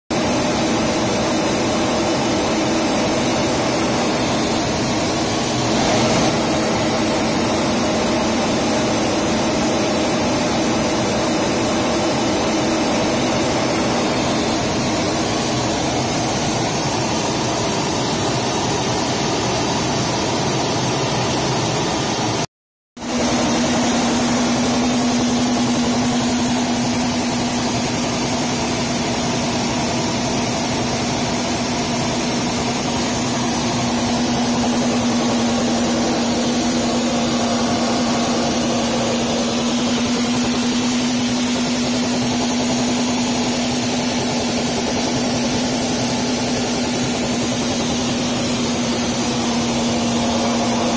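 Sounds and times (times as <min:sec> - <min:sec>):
jet cockpit rushing hiss: 0:32.9 - 0:50.9
low hum: 0:33.2 - 0:50.9.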